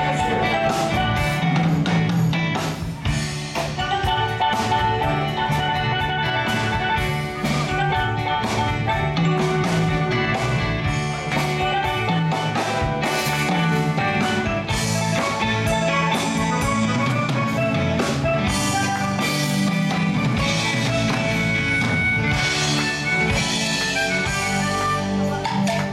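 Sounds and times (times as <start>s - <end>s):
drum kit: 0.0s - 25.9s
electric guitar: 0.0s - 25.9s
keyboards: 0.0s - 25.9s.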